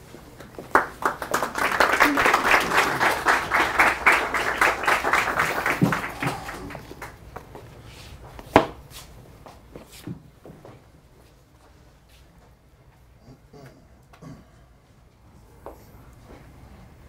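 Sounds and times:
audience applause: 0.4 - 7.4
shuffles: 5.5 - 12.6.

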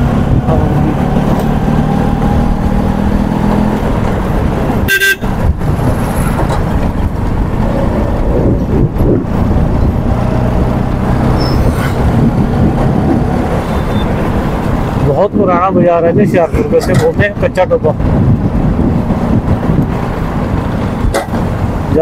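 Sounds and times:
street traffic engines: 0.0 - 22.0
vehicle horn toot: 4.9 - 5.3.

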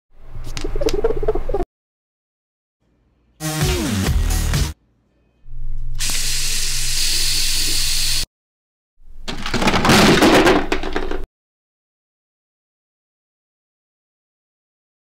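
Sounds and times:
loud hissing noise: 6.0 - 8.3.

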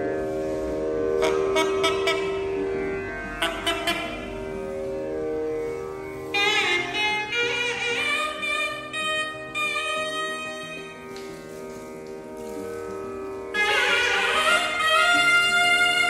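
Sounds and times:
double-reed horn playing: 1.1 - 5.0, 5.6 - 16.0.

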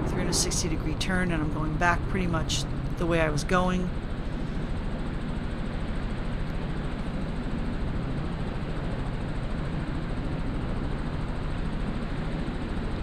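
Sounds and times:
helicopter engine and rotor drone: 0.0 - 13.0.

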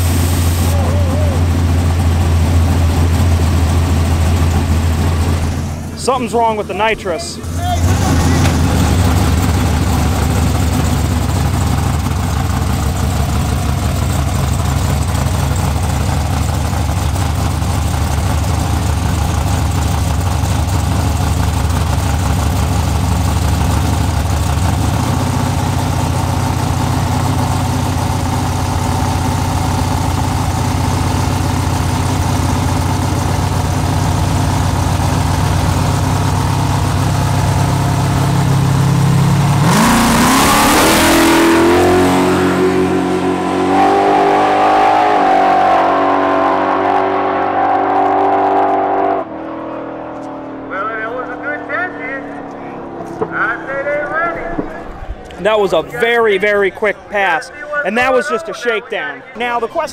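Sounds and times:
car engine idling loudly: 0.0 - 47.4.

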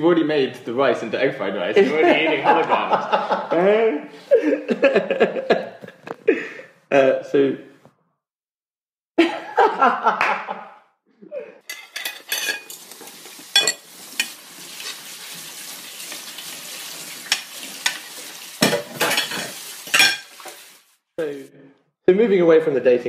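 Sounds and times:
utensils and dishes clinking: 11.7 - 14.4, 18.6 - 20.4.

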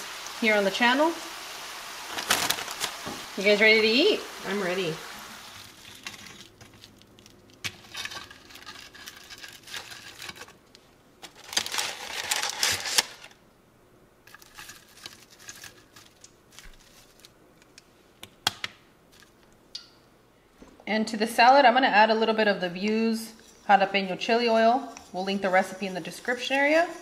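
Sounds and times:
parchment paper rustling: 2.1 - 3.2, 5.6 - 10.6, 11.2 - 13.4, 14.3 - 17.4.

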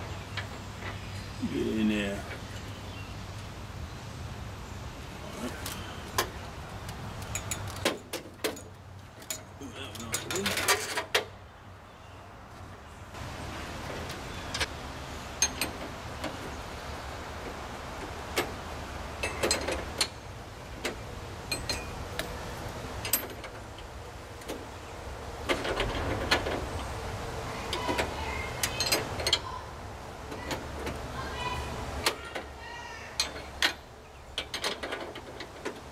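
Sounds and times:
hand tools clinking on metal: 7.2 - 11.0, 19.2 - 20.2, 21.5 - 22.3, 27.7 - 29.6, 33.1 - 35.9.

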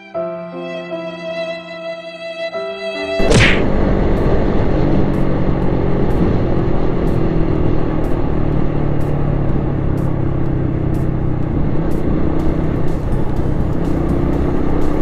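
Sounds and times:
motorcycle engine running: 3.6 - 15.0.

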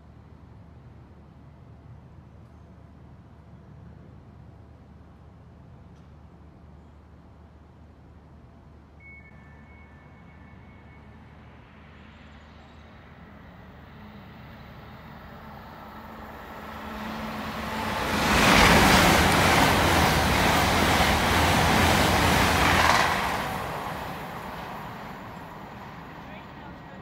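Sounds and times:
train passing at speed: 9.7 - 27.0.

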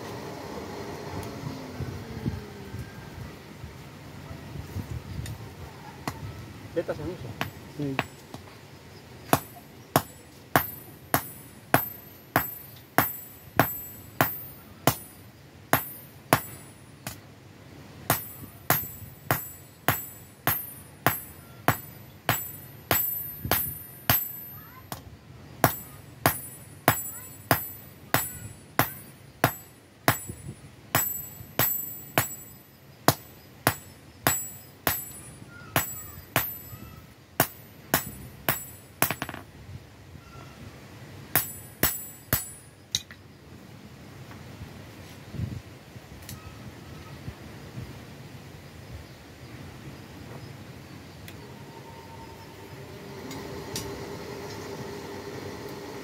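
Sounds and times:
hammer blows ringing on anvil: 9.3 - 15.2, 15.8 - 16.8, 18.1 - 25.0, 25.6 - 39.4, 41.4 - 42.7.

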